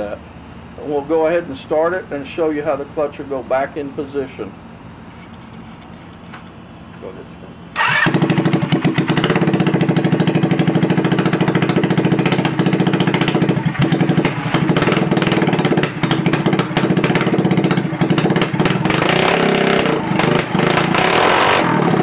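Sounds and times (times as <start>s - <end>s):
go kart engine idling: 7.7s - 21.0s.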